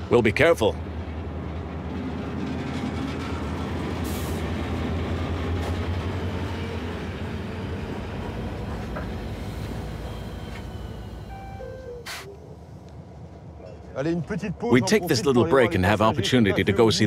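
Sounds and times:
diesel locomotive engine drone: 0.0s - 17.0s
train wagons rumbling: 0.0s - 17.0s
short hiss: 12.0s - 12.3s.

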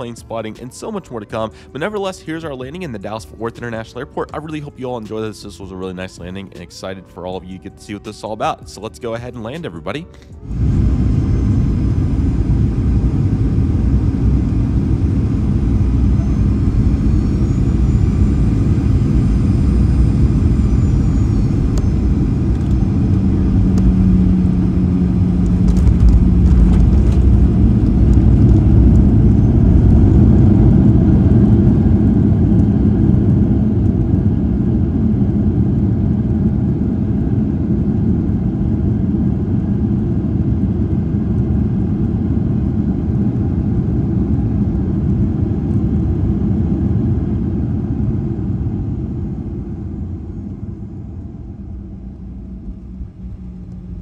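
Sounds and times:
jet engine deep rumble: 0.0s - 8.7s, 10.3s - 54.0s
rushing air: 10.3s - 31.2s.

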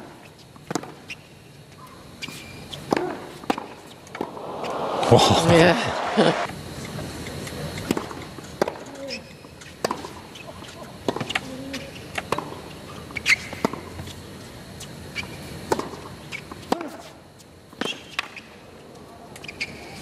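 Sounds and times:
low crowd hush: 4.2s - 6.5s.

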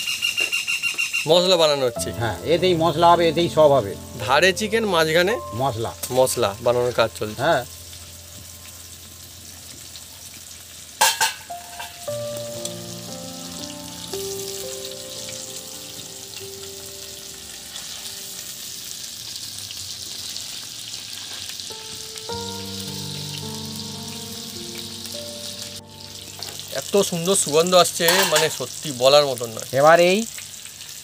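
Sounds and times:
soft background music: 1.3s - 19.8s, 21.6s - 31.0s
food sizzling in a pan: 1.6s - 31.0s.

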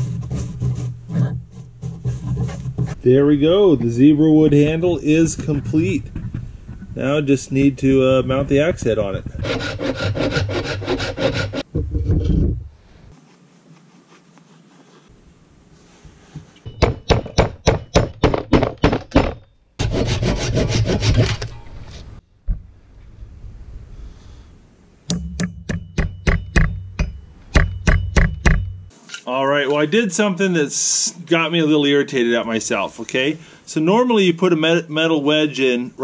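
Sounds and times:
steady scraping: 0.0s - 15.1s, 19.8s - 23.2s
hammer striking metal: 16.7s - 19.4s, 25.1s - 29.0s.

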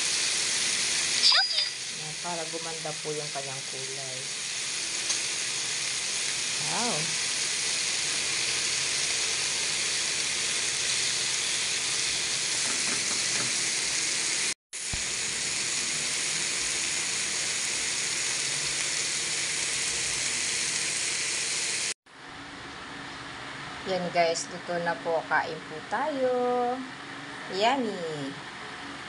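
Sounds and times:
meat sizzling on a grill pan: 0.0s - 22.0s.

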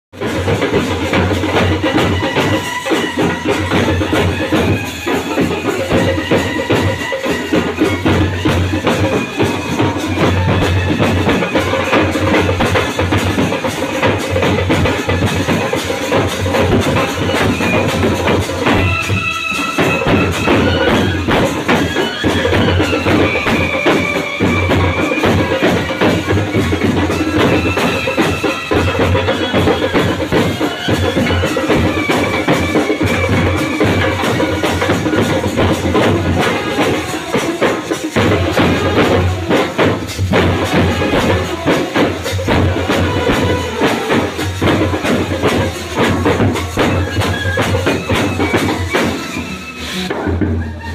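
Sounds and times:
snare drums: 0.1s - 50.9s
brass band playing: 0.2s - 50.9s
brass horns playing: 36.2s - 37.6s, 38.2s - 48.5s.

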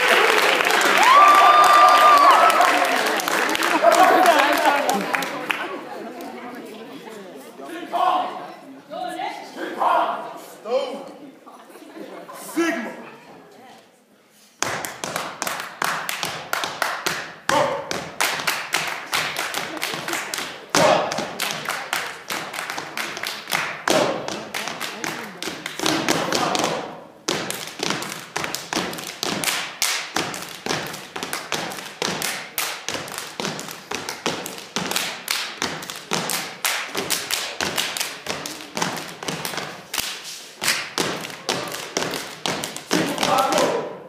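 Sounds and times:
hand claps: 14.6s - 26.6s, 27.5s - 43.7s.

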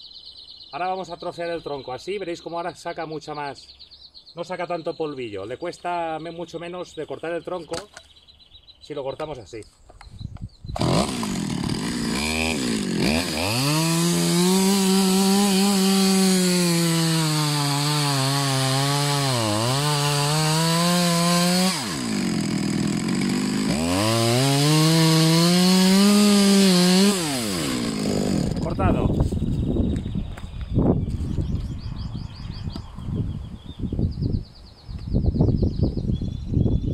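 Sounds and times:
chainsaw cutting through log: 10.8s - 28.8s.

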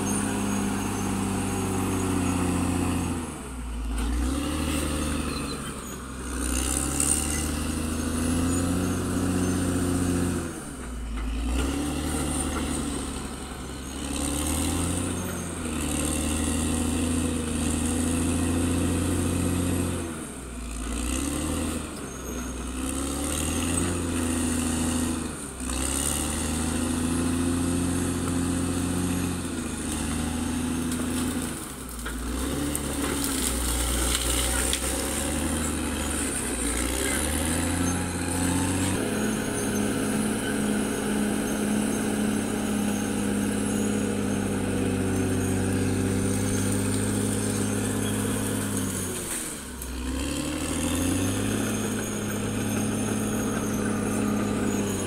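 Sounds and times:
bulldozer diesel engine under load: 0.0s - 55.0s.

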